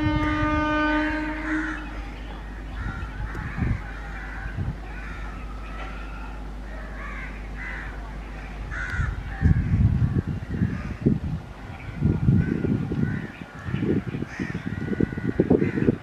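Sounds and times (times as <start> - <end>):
steady low hum: 0.0 - 16.0
uneven low rumble: 0.0 - 16.0
crows cawing: 2.8 - 8.0, 8.7 - 9.7, 12.4 - 16.0.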